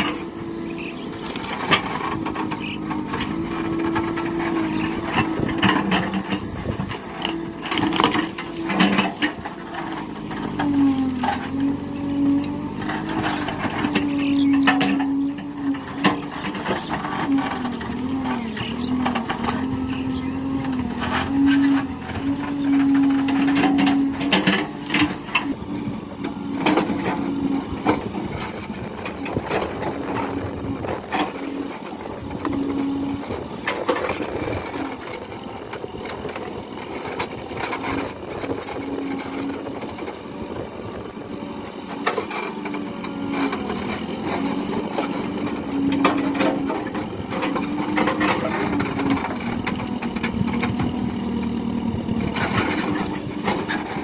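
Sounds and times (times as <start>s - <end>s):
diesel engine droning: 0.0s - 54.0s
backhoe bucket clanks and knocks: 12.8s - 17.7s.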